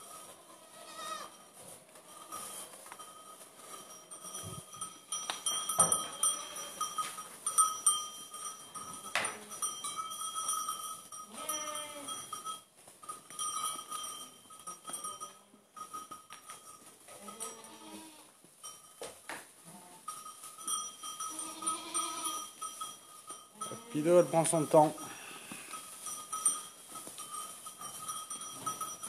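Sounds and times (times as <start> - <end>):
goat bells clanking: 0.0 - 29.0
goat bleating: 0.4 - 1.4, 11.3 - 12.1, 17.2 - 18.3, 21.3 - 22.4.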